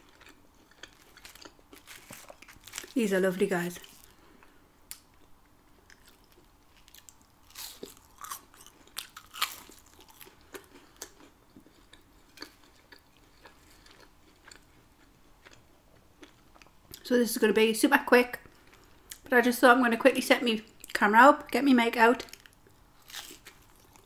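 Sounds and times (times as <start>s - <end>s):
crunchy biting and chewing: 0.0s - 3.0s, 5.8s - 15.6s, 22.4s - 24.0s.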